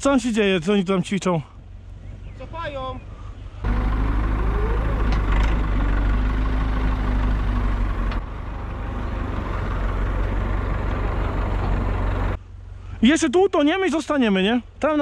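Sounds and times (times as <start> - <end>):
tractor diesel engine running: 3.2 - 12.7.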